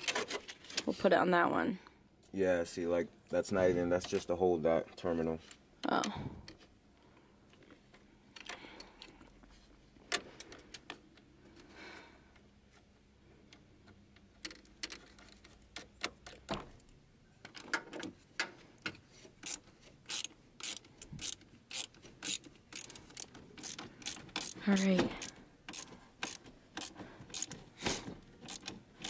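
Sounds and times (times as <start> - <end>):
ratchet wrench clicking: 19.4 - 27.6, 28.4 - 28.8.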